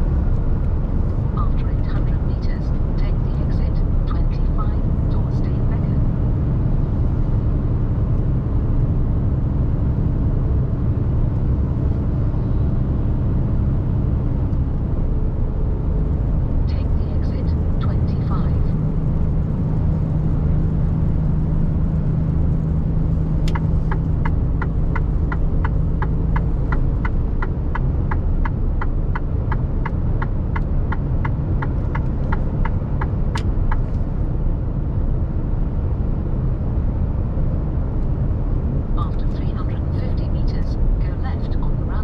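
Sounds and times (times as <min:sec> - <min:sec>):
truck engine and road rumble: 0:00.0 - 0:42.0
turn indicator ticking: 0:22.4 - 0:34.2.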